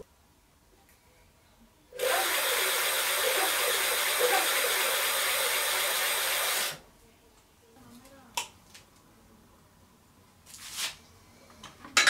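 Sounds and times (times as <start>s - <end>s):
loud steady hiss: 2.0s - 6.8s.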